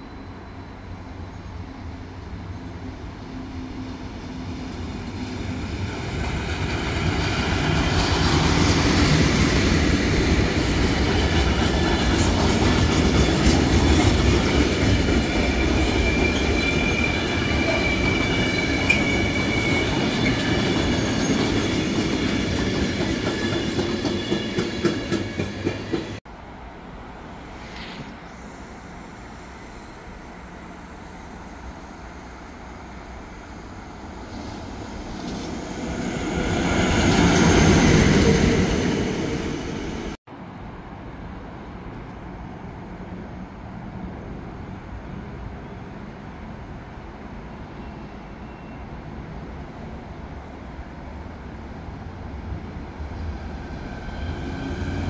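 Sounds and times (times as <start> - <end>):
freight train wagons rumbling: 3.4 - 26.2.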